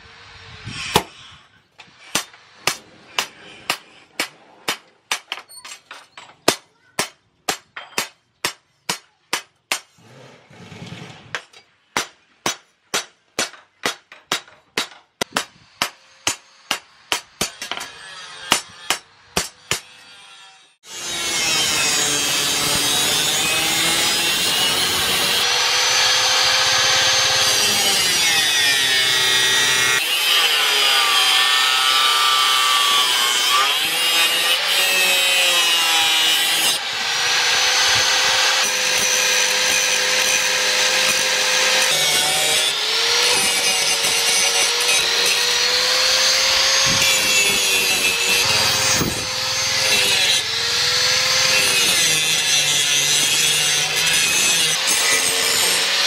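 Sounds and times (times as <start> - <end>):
angle grinder grinding steel: 19.5 - 56.0.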